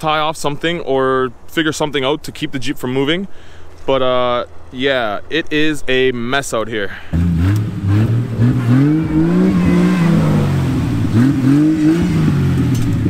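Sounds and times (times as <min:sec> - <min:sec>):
vehicle engine revving: 0:07.1 - 0:13.0.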